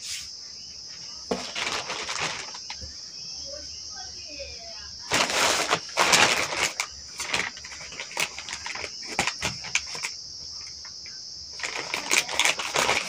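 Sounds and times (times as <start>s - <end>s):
plastic mailer rustling and crinkling: 1.2s - 3.0s, 5.0s - 13.0s.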